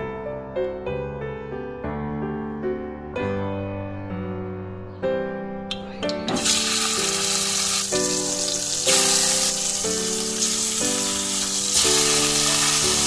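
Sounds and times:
background music: 0:00.0 - 0:13.0
chicken sizzling in hot oil: 0:06.1 - 0:13.0.

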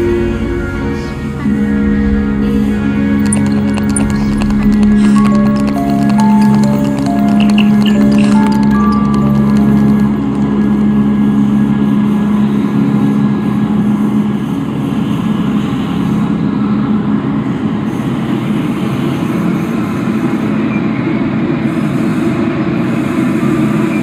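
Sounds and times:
low hum: 0:00.0 - 0:13.3
dense rumbling noise: 0:00.3 - 0:11.6.

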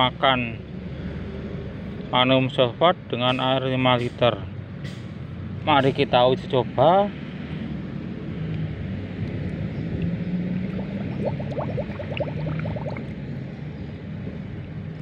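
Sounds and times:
bubbly gurgles: 0:10.0 - 0:13.2
low hum: 0:10.0 - 0:13.2
water sloshing in bucket: 0:10.6 - 0:13.1.

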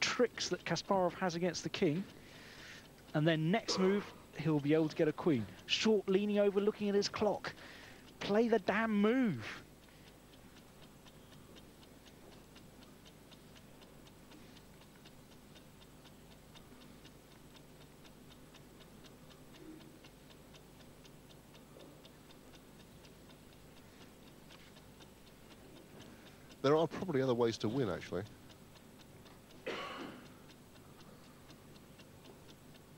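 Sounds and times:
clock ticking: 0:00.0 - 0:32.9.

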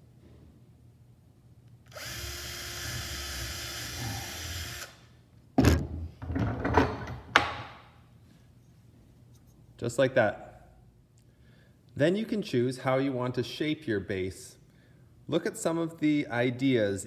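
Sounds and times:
cordless drill boring wood: 0:01.9 - 0:05.0.

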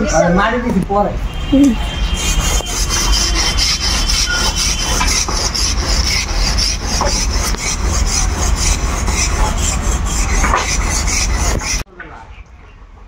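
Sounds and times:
hand saw cutting wood: 0:02.0 - 0:11.8.

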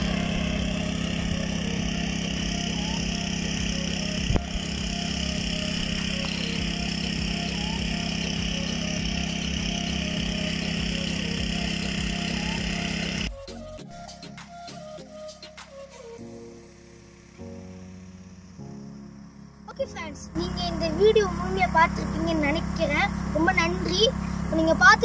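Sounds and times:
small petrol engine running: 0:00.0 - 0:13.6, 0:19.7 - 0:25.0.

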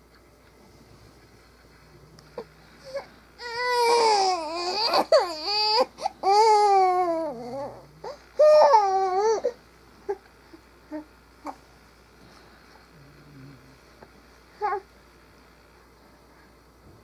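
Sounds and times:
infant crying: 0:02.4 - 0:10.2, 0:14.6 - 0:14.8.

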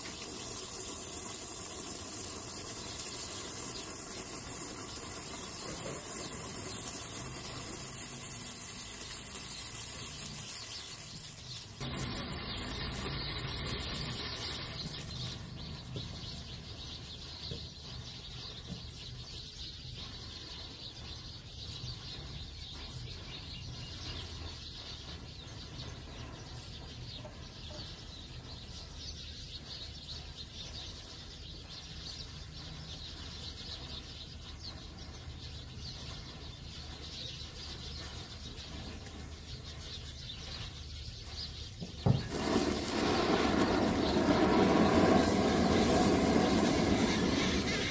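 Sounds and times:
firework fountain hissing: 0:00.0 - 0:15.9, 0:42.0 - 0:47.9
matchsticks flaring with crackles: 0:08.8 - 0:15.4, 0:42.2 - 0:47.9.

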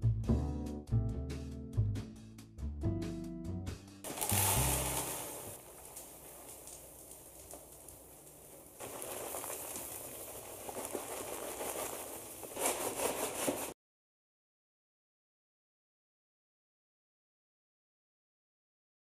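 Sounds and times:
litter pellets pouring into plastic box: 0:04.1 - 0:06.6, 0:08.8 - 0:13.6.

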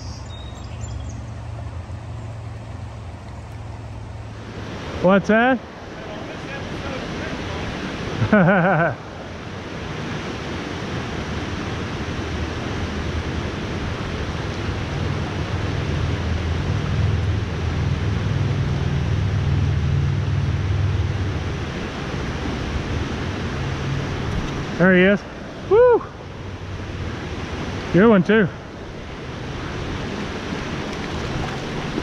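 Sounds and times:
creek water rushing over rocks: 0:01.3 - 0:32.0
low rumble: 0:14.8 - 0:21.8.

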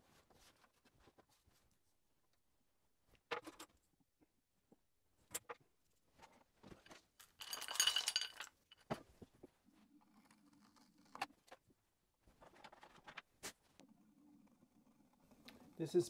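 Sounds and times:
small hard objects clinking: 0:07.2 - 0:08.9.

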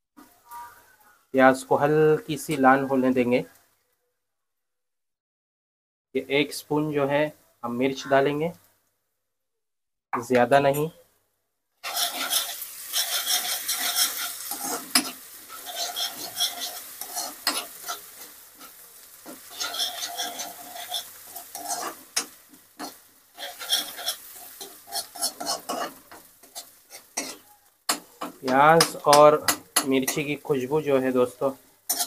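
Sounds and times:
spatula scraping metal pan: 0:11.8 - 0:30.3
onions sizzling in hot oil: 0:11.8 - 0:32.0.

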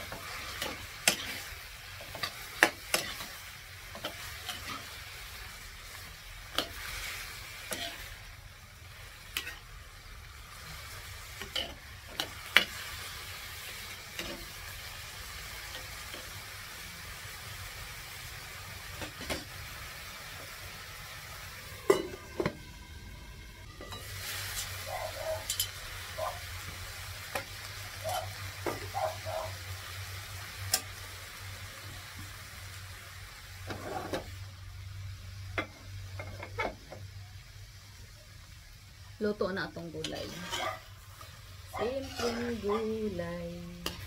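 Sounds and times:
vegetables sizzling in a frying pan: 0:00.0 - 0:44.0
ladle scraping a pan: 0:40.0 - 0:40.9, 0:41.8 - 0:42.9.

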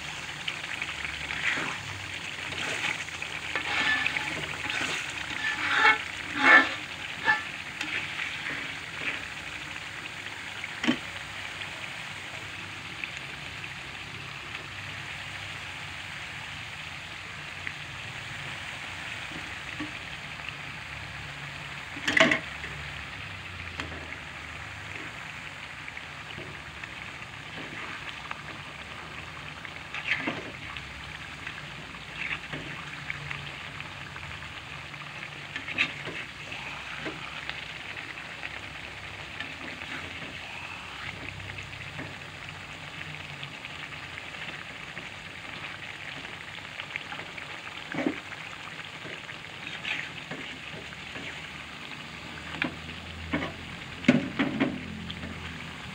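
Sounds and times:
sauce sizzling in a wok: 0:00.0 - 0:55.9
metal spatula scraping a pan: 0:00.7 - 0:09.6, 0:26.3 - 0:31.2, 0:31.8 - 0:33.4, 0:35.0 - 0:37.7, 0:38.5 - 0:40.4, 0:49.2 - 0:51.5.

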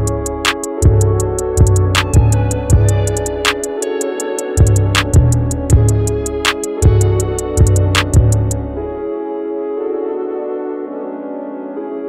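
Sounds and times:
held chords: 0:00.0 - 0:09.1
deep drum thumps: 0:04.6 - 0:06.1, 0:06.8 - 0:08.5.

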